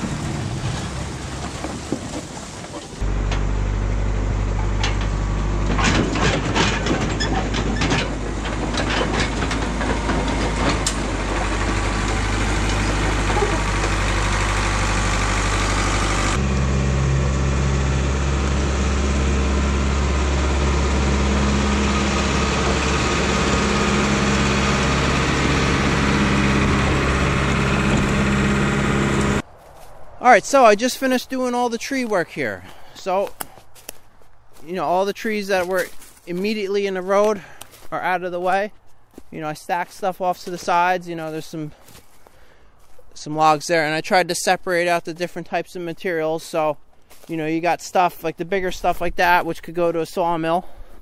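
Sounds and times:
diesel engine running: 0.0s - 29.4s, 35.6s - 39.4s
metallic clanks of steel tracks: 4.5s - 14.5s.

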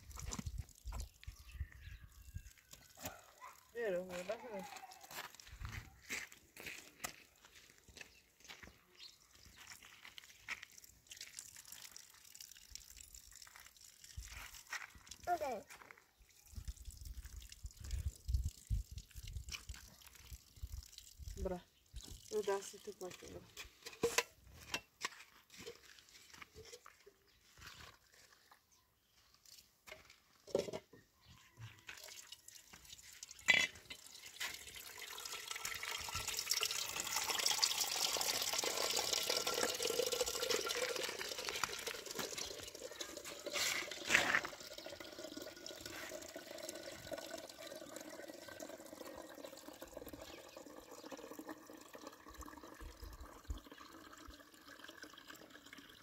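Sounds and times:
water running: 16.8s - 23.4s, 31.9s - 56.0s.

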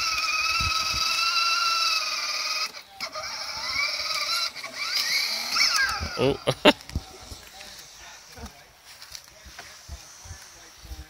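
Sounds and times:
electric toy car motor whine: 0.0s - 6.2s.

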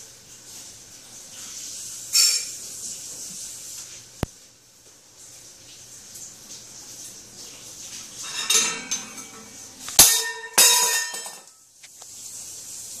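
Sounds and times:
metal bowl scraping cage top: 8.2s - 11.5s
metal bowl clanging on wooden floor: 8.2s - 11.6s.

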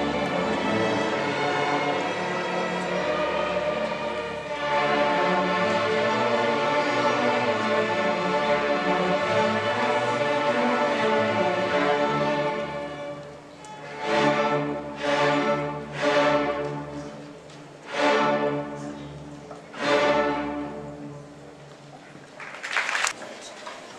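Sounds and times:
loud accented orchestral chords: 0.0s - 13.2s
string orchestra playing: 0.0s - 22.0s.

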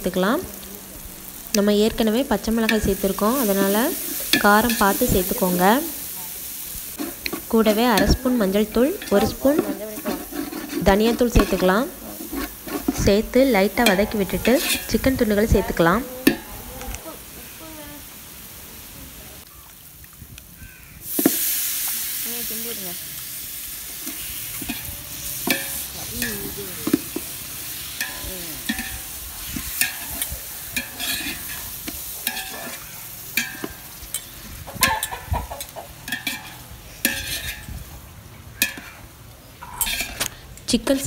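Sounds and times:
chicken sizzling in hot oil: 0.0s - 41.0s
metal ladle scraping a pot: 6.9s - 16.5s, 24.0s - 37.8s, 39.6s - 40.4s.

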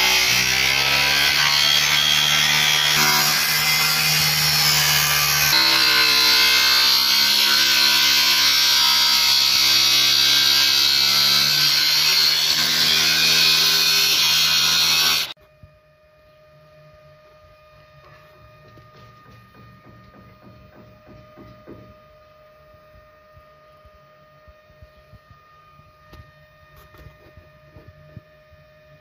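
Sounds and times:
angle grinder cutting steel: 0.0s - 15.4s.

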